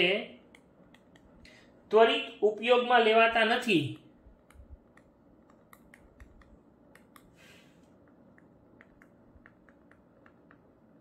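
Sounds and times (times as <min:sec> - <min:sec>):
stylus taps on tablet screen: 0:08.1 - 0:10.7.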